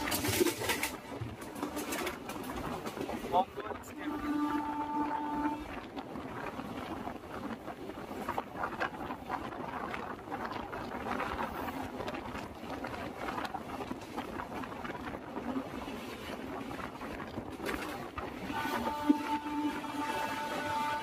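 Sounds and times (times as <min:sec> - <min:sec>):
train wheels clattering: 0:00.0 - 0:03.5
passenger train rumbling: 0:00.0 - 0:21.0.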